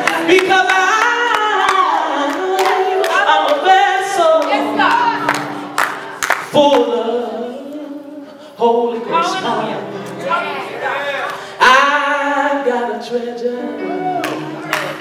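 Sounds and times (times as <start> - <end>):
man singing into a microphone: 0.0 - 4.5, 6.4 - 10.1, 11.4 - 14.6
voices singing along: 6.2 - 14.6.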